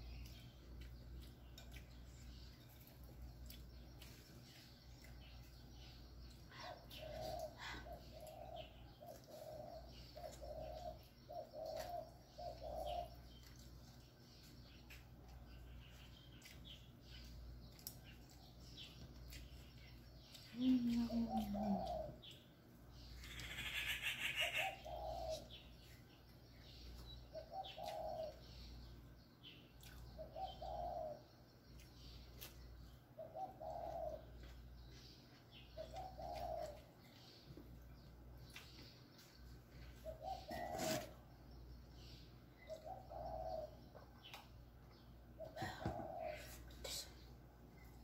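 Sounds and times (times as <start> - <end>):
dove cooing: 6.6 - 13.2, 20.5 - 22.2, 23.4 - 25.6, 27.3 - 28.5, 30.2 - 31.2, 33.2 - 34.4, 35.8 - 36.8, 40.0 - 41.2, 42.6 - 43.9, 45.4 - 46.6.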